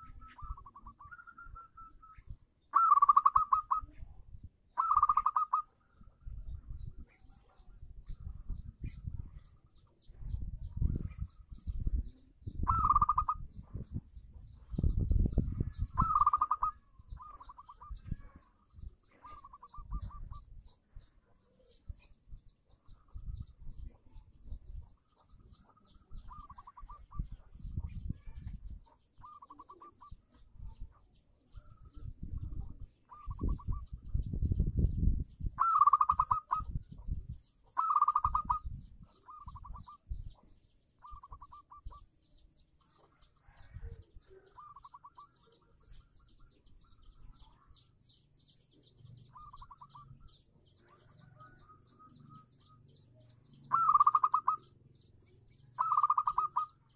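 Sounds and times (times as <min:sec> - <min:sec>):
dove cooing trills: 0:00.0 - 0:04.0, 0:04.7 - 0:06.0, 0:10.9 - 0:13.8, 0:15.7 - 0:21.1, 0:25.0 - 0:34.0, 0:35.6 - 0:40.4, 0:41.0 - 0:42.1, 0:42.9 - 0:47.9, 0:48.8 - 0:56.9.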